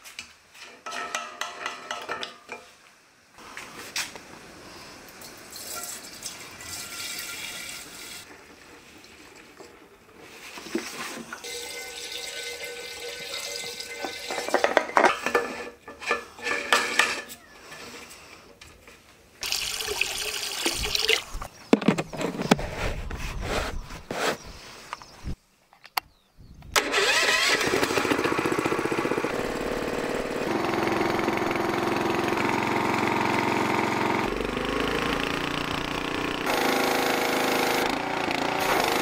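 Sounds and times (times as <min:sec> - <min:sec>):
water pouring into plastic tank: 0:11.4 - 0:14.3, 0:19.4 - 0:21.5.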